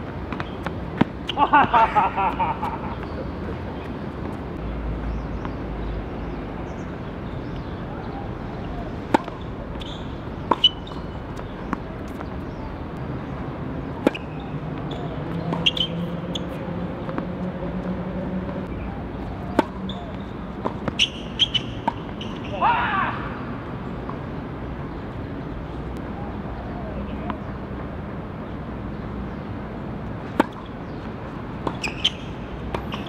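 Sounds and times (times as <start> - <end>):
tennis ball bouncing on court: 0.2 - 3.1, 9.1 - 12.6, 14.0 - 17.9, 19.5 - 22.4, 30.2 - 33.0
tennis ball hit by rackets: 9.1 - 12.6, 19.5 - 19.8, 30.3 - 31.0.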